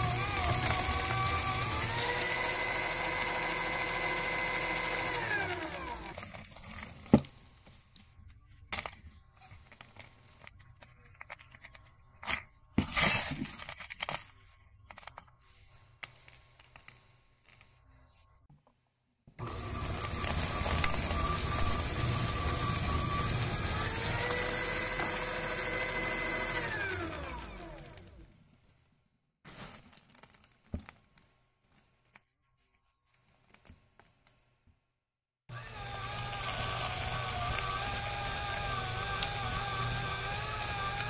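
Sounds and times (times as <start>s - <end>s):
shredder motor whining: 0.0s - 6.3s, 19.4s - 28.3s, 35.5s - 41.0s.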